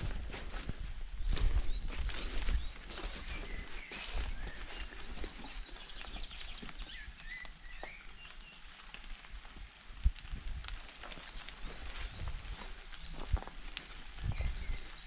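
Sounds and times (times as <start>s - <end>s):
footsteps on leaf litter: 0.0s - 15.0s
bird chirps: 1.2s - 8.6s.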